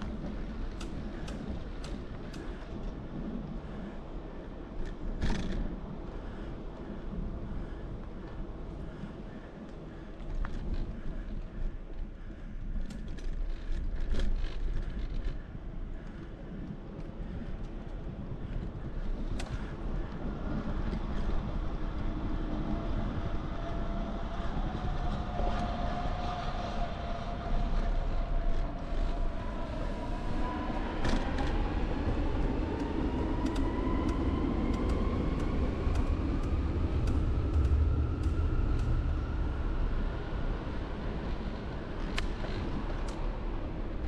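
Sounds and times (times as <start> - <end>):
low rumble: 14.9 - 44.0.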